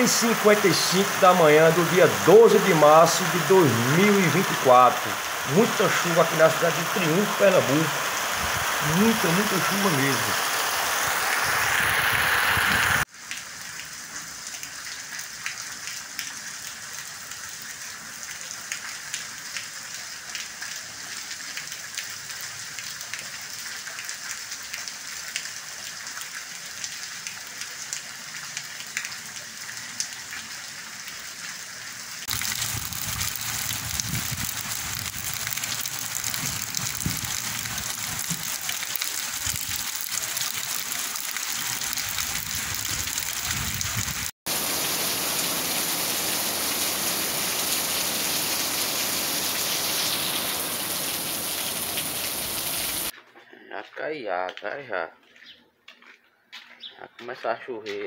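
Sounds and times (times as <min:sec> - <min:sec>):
heavy rain hissing: 0:00.0 - 0:13.1, 0:32.2 - 0:53.1
water running: 0:00.0 - 0:13.1, 0:32.2 - 0:53.1
rain on a paved street: 0:00.0 - 0:53.2.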